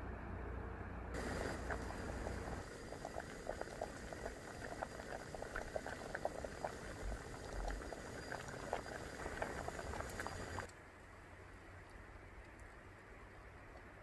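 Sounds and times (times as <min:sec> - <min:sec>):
liquid boiling: 0:01.2 - 0:10.7.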